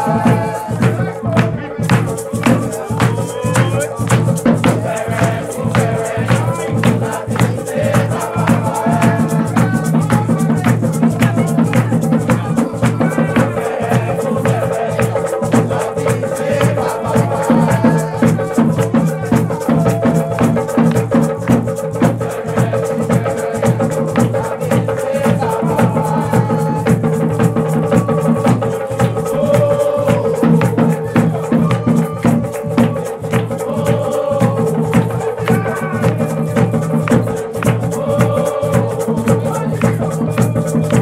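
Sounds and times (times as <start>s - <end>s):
percussion-led drum music: 0.0s - 41.0s.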